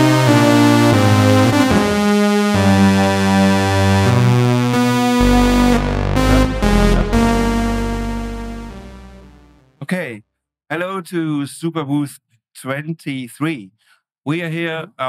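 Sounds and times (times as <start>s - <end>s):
deep bass: 0.0s - 9.6s
synthesizer chords: 0.0s - 9.8s.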